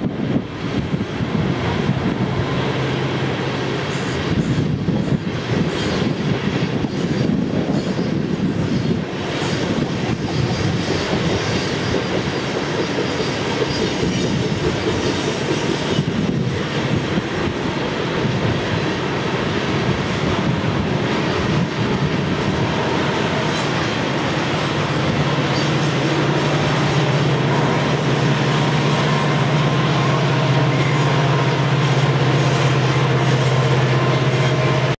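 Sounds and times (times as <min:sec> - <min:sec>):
train wheels rumbling on rails: 0:00.0 - 0:35.0
light wheel squeal: 0:05.6 - 0:16.3, 0:23.2 - 0:28.2.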